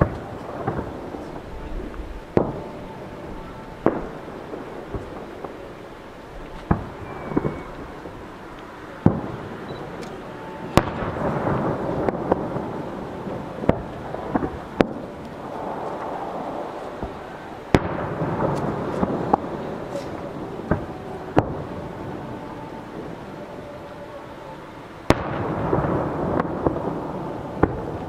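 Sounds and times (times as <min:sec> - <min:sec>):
noisy rumble: 0:00.0 - 0:28.0.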